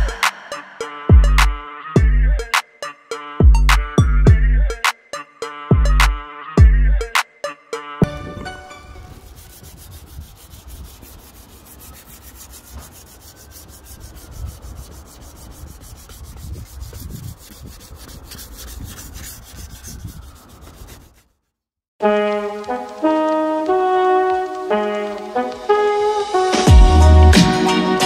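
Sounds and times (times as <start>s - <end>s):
sandpaper scratching: 9.0s - 21.4s.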